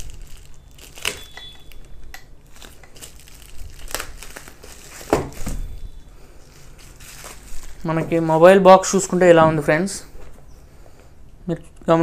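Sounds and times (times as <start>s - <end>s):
bubble wrap crinkling: 0.0s - 9.1s.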